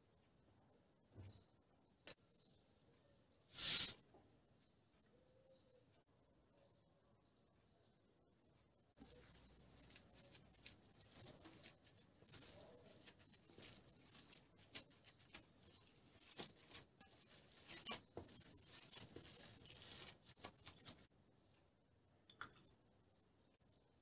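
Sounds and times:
hands squishing raw meat: 9.0s - 21.1s.

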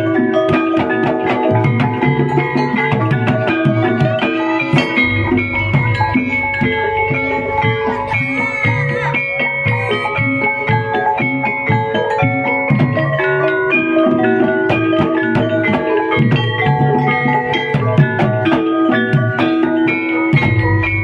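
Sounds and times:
gongs and metallophone notes: 0.0s - 21.0s
low drum strokes: 3.7s - 9.1s.

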